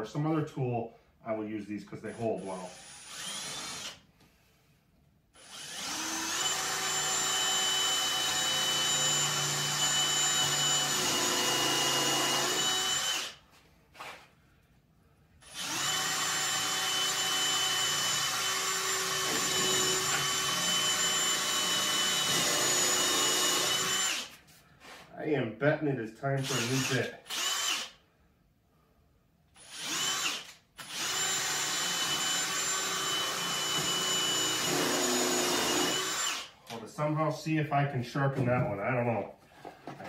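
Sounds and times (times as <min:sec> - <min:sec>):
cordless drill boring into wood: 0:02.1 - 0:04.0, 0:05.4 - 0:13.4, 0:15.4 - 0:24.3, 0:26.4 - 0:28.0, 0:29.6 - 0:36.6.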